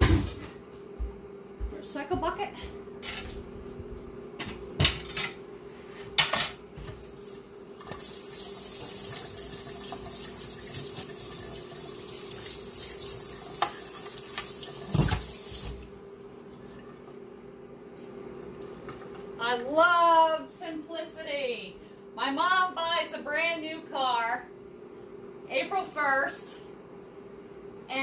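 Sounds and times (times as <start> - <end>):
faucet running into sink: 7.2 - 15.9
knocks and clatters at sink: 14.9 - 15.3.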